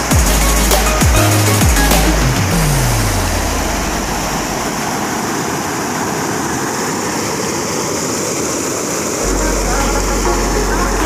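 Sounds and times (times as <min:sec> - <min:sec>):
waterfall rushing over rocks: 0:00.0 - 0:11.0
deep falling music tone: 0:09.2 - 0:11.0.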